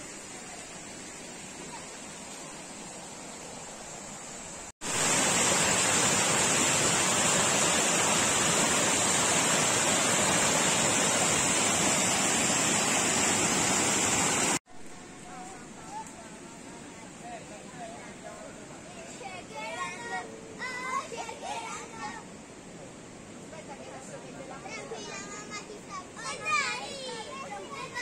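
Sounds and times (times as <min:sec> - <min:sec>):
river water rushing over rapids: 0:00.0 - 0:14.6.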